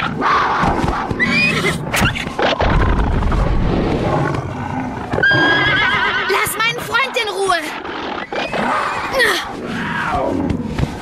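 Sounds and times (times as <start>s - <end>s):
horse whinnying: 1.2s - 2.3s, 5.2s - 6.5s, 7.9s - 10.3s
low growling beast: 2.8s - 5.5s, 7.7s - 11.0s.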